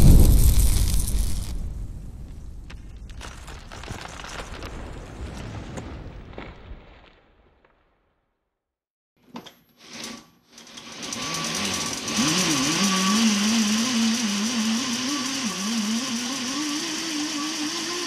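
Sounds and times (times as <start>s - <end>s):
electric motor whining: 11.0s - 18.0s.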